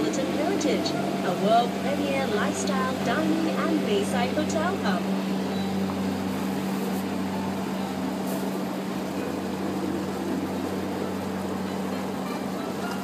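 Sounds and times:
boat engine running: 0.0s - 13.0s
rushing water and air: 0.0s - 13.0s.

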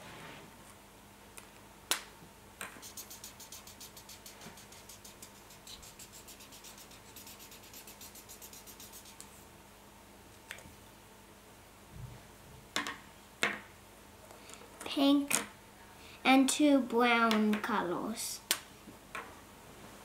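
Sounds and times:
marker scribbling on paper: 2.8s - 9.4s.

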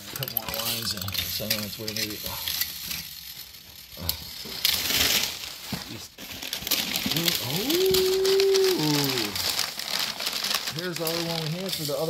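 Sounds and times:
wrapping paper rustling: 0.0s - 12.0s
person humming: 7.4s - 9.4s.

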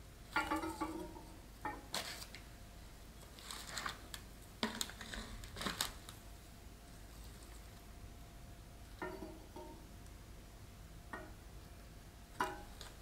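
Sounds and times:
plant rustling: 3.3s - 6.2s.

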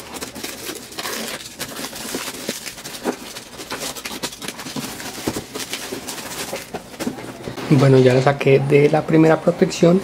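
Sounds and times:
plastic mailer being torn open: 0.0s - 7.1s.

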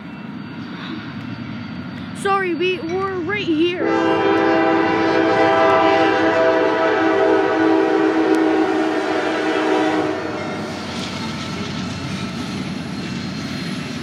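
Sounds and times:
passing train rumble: 0.0s - 14.0s
locomotive air horn blast: 3.8s - 10.7s.

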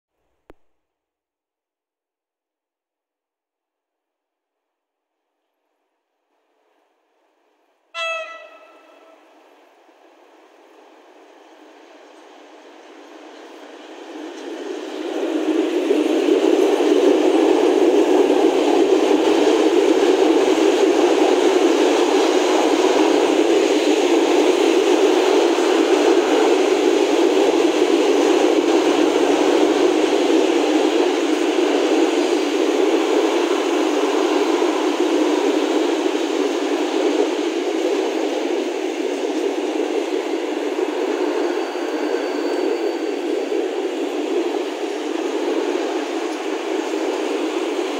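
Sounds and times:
train wheels rolling on rails: 9.9s - 47.9s.

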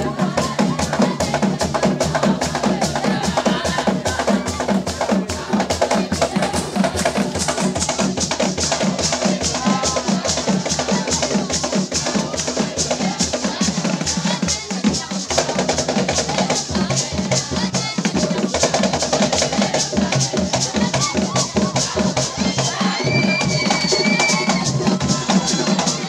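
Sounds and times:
fast drumming: 0.0s - 26.0s
faint voices: 19.7s - 26.0s.

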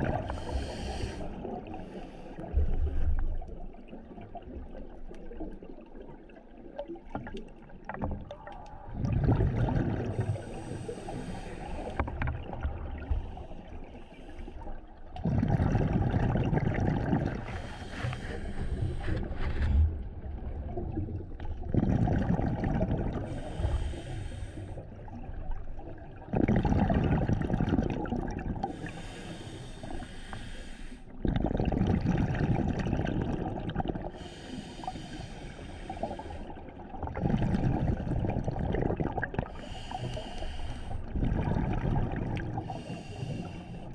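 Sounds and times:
exhaled bubbles underwater: 0.0s - 30.3s, 31.1s - 43.9s
regulator air hiss: 0.3s - 1.3s, 28.8s - 31.0s, 34.2s - 36.4s.

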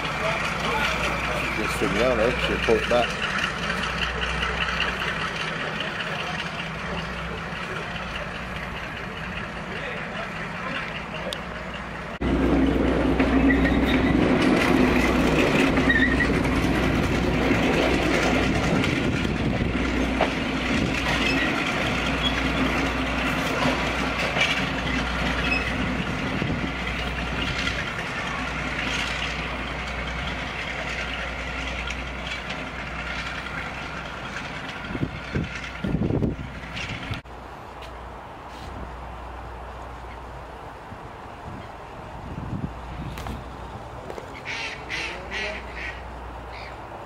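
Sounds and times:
diesel locomotive engine drone: 0.0s - 47.0s.

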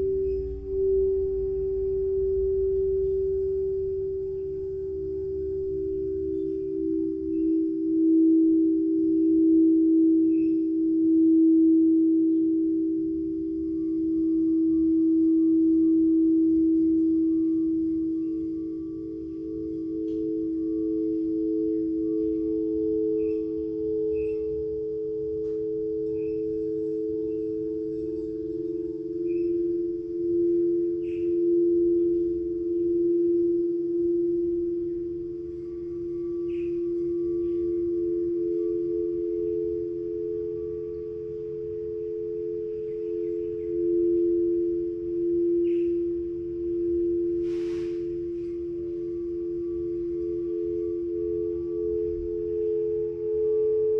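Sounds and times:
faint higher tone: 0.0s - 53.9s
singing bowls ringing: 0.0s - 53.9s.

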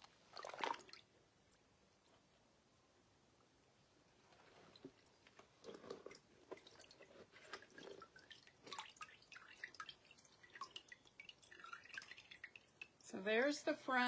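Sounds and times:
water dripping and splashing: 0.0s - 1.1s, 4.7s - 13.2s.

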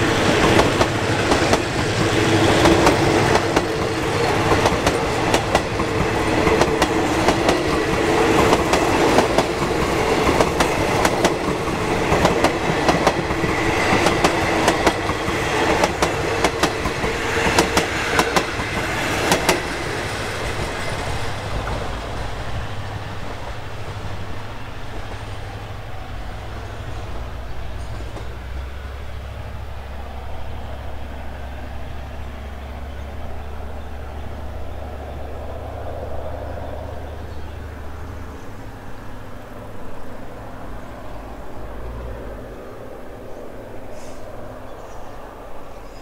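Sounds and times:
wheels clacking over rail joints: 0.0s - 30.3s
train rolling past: 0.0s - 46.0s.

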